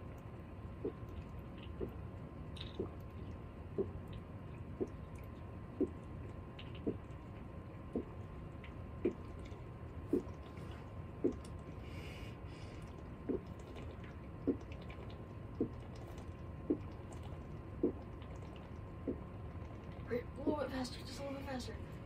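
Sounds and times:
person gulping water: 9.0 - 11.6, 12.8 - 20.0.

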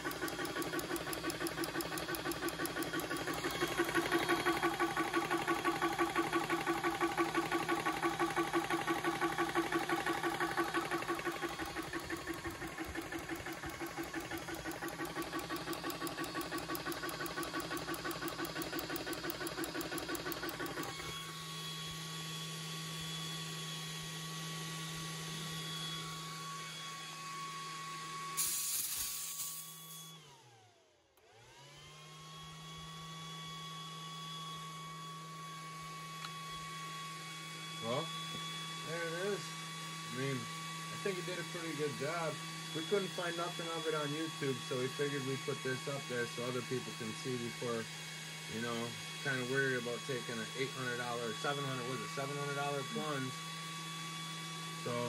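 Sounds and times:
cooling fans humming: 0.0 - 21.1
compressor piston pumping: 0.0 - 21.2.

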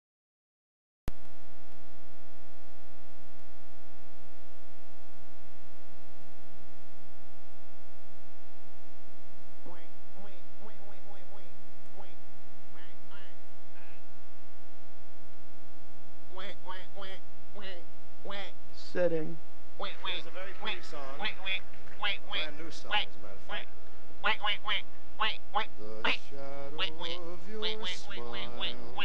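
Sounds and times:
electrical hum: 1.3 - 29.0
faint short pitched sounds: 9.7 - 14.1.

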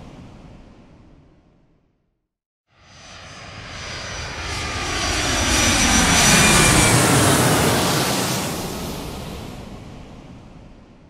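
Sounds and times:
airplane flying over: 2.7 - 11.0.

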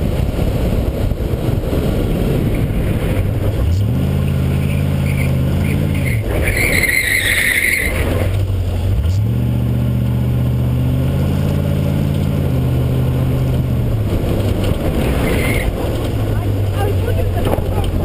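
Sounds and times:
car engine running hard: 0.0 - 18.0
tyre squeal: 4.6 - 8.3, 15.1 - 15.8.

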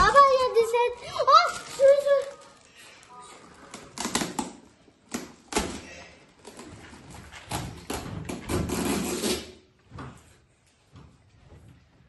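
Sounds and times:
plastic wrapping crinkling: 0.0 - 4.7.

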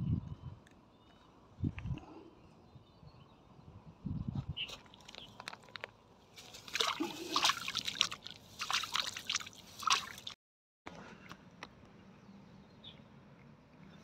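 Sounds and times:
water sloshing and splashing: 4.8 - 10.4.

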